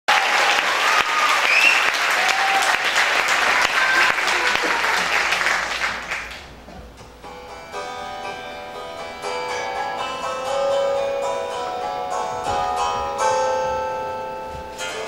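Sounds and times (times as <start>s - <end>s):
audience applauding: 0.1s - 6.6s.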